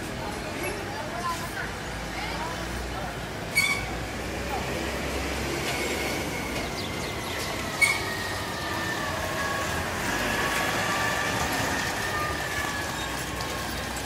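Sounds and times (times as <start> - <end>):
street noise: 0.0 - 14.0.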